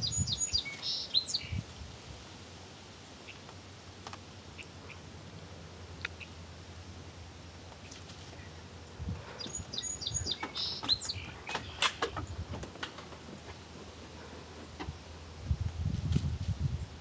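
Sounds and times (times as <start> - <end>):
chipmunk chirping: 0.0 - 1.6, 9.4 - 11.8.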